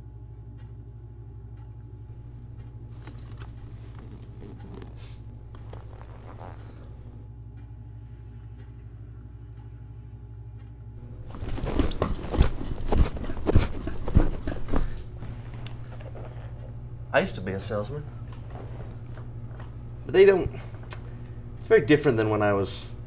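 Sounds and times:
low steady hum: 0.0s - 23.0s
chair scooting across carpet: 2.9s - 7.2s, 11.1s - 16.5s.

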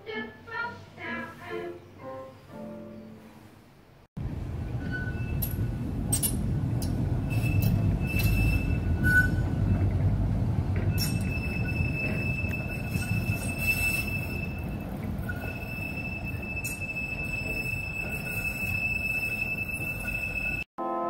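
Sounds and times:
music with singing: 0.0s - 2.3s
tram wheels rumbling on rails: 4.2s - 20.7s
high wheel squeals: 4.5s - 20.7s.

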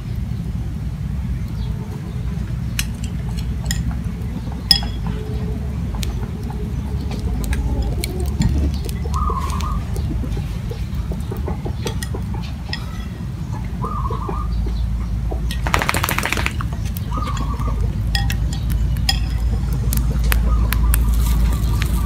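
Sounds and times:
spoon clicking on ceramic bowls: 2.8s - 4.0s, 4.7s - 5.2s, 11.7s - 13.2s, 15.5s - 19.8s
bird calling: 4.4s - 22.0s
rapid rattling: 15.5s - 17.5s.

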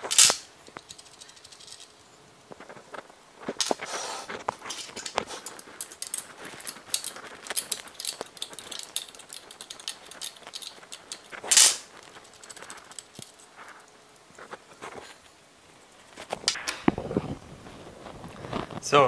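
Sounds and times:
tools clicking on metal: 0.0s - 2.0s, 4.8s - 14.4s.

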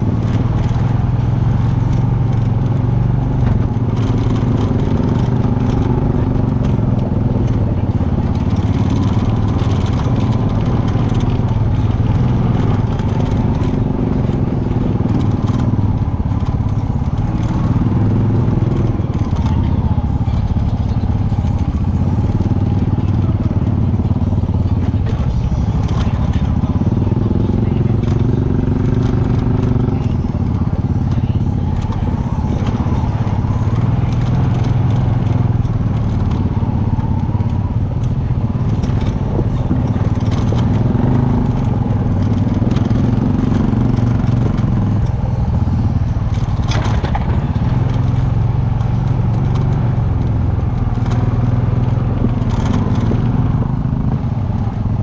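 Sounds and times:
atv engine revving: 0.0s - 55.0s
knocks and clatter from rough ground: 45.7s - 49.8s.

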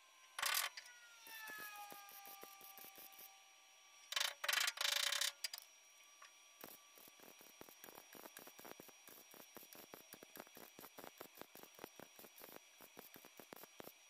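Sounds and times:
welder arc crackling: 0.4s - 0.7s, 4.1s - 5.6s, 6.6s - 14.0s.

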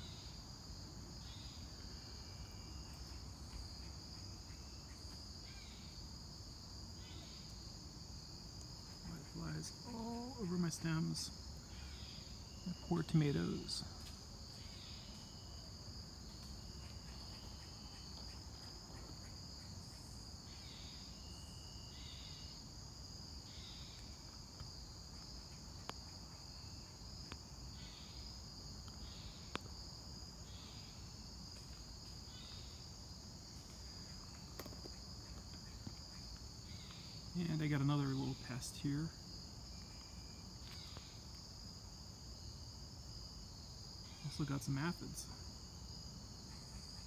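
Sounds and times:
high-pitched insect chorus: 0.0s - 47.0s
lower insect call: 0.0s - 47.0s.

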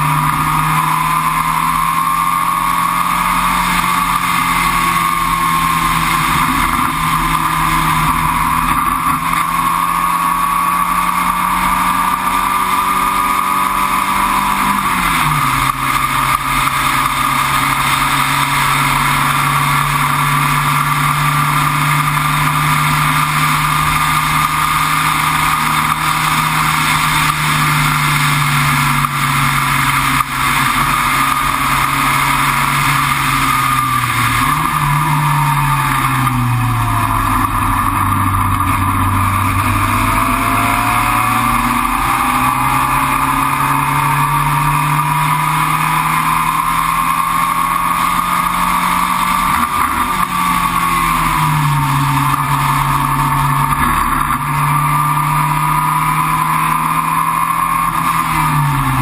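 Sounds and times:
high wavering whine: 0.0s - 59.0s
race car engine running hard: 0.0s - 59.0s
rushing noise: 22.5s - 59.0s.

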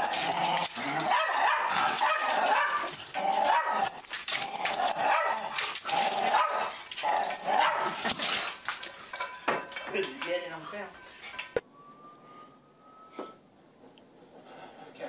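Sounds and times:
dog yipping and whining: 1.0s - 5.7s.

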